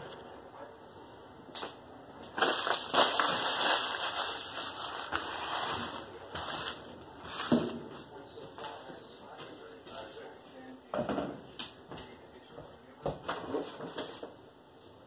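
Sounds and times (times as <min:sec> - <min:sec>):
paper crinkling and rustling: 0:02.3 - 0:07.7.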